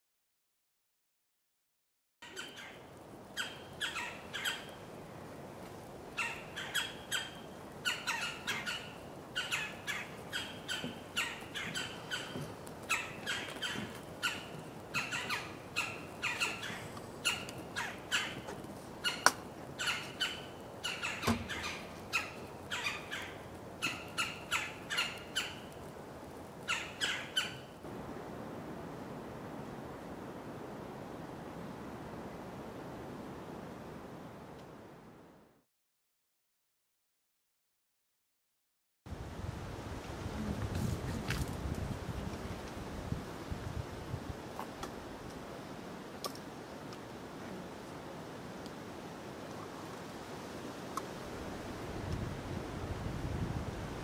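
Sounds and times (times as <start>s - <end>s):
woodpeckers churring calls: 2.2s - 4.9s, 6.2s - 25.9s, 26.6s - 27.8s.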